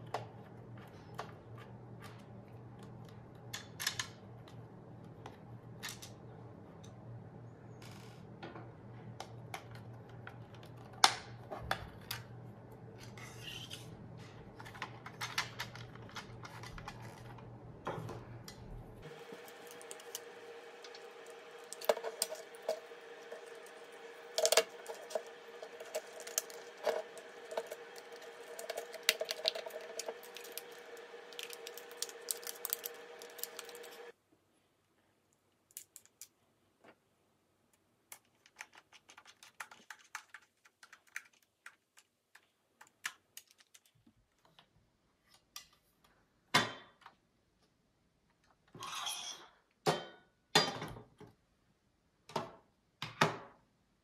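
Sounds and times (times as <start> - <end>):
steady hum: 11.6 - 34.1.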